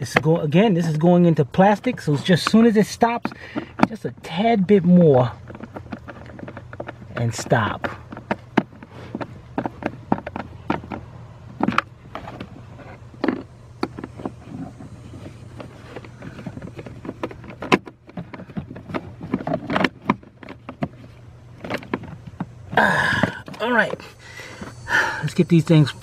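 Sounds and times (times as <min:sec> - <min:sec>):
wiring connectors handled: 0:00.0 - 0:24.7
steady low hum: 0:00.0 - 0:26.0
tool clicks and light knocks: 0:01.8 - 0:12.5.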